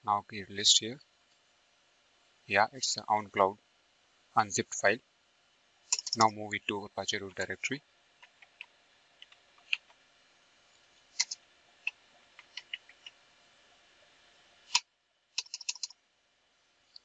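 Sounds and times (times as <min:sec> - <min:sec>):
keyboard key clicks: 0:05.9 - 0:06.3, 0:15.4 - 0:15.9.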